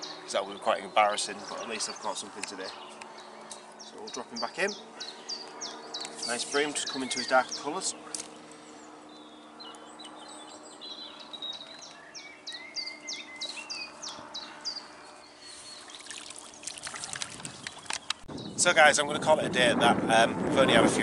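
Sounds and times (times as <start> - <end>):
small bird singing: 0.0 - 19.1
faint water sounds: 15.8 - 18.1
light water splashes: 15.8 - 18.1
net dripping water: 15.8 - 18.1.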